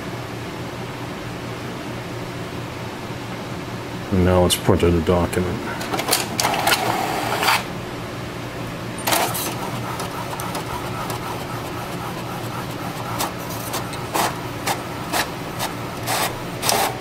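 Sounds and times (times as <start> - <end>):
printer motors whirring: 5.7 - 7.8, 8.9 - 17.0.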